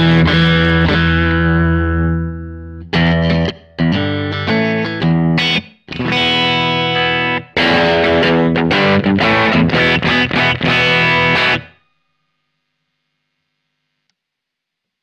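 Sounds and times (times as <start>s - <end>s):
overdriven electric guitar chords: 0.0s - 11.9s.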